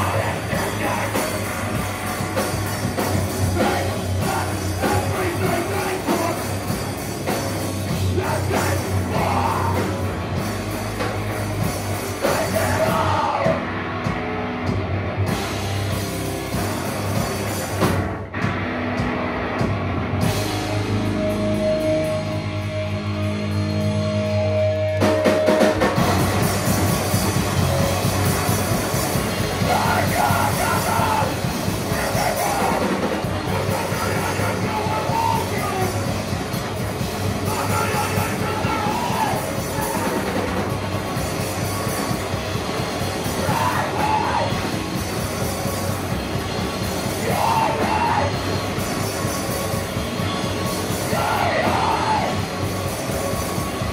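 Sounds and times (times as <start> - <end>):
person singing: 0.0 - 1.5, 3.5 - 6.7, 8.0 - 10.1, 12.2 - 13.7, 29.6 - 36.1, 37.4 - 40.6, 43.4 - 44.7, 47.2 - 48.4, 50.9 - 52.4
heavy metal band playing: 0.0 - 53.9.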